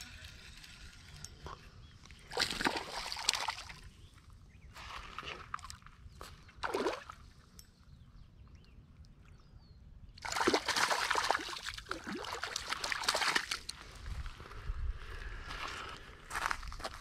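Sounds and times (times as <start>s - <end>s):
fish splashing in shallow water: 2.2s - 4.0s, 6.6s - 7.5s, 10.2s - 13.8s.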